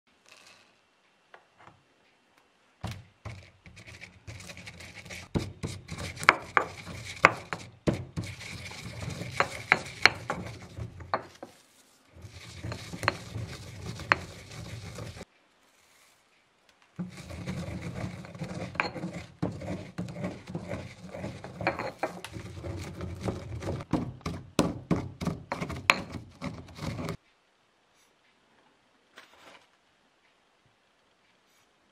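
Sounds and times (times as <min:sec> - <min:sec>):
stone pestle grinding in mortar: 0:02.8 - 0:15.2, 0:17.0 - 0:27.2.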